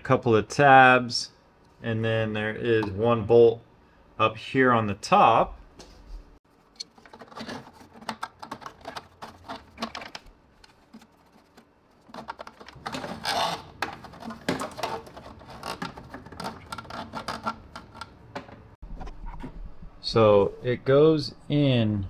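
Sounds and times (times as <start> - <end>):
plastic rubbing: 6.5 - 18.4.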